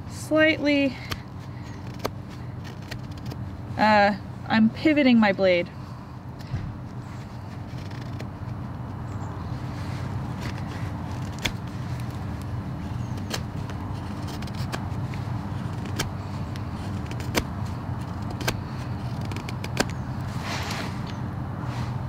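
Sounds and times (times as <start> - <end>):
knife carving wood: 1.0 - 3.5, 7.0 - 21.2.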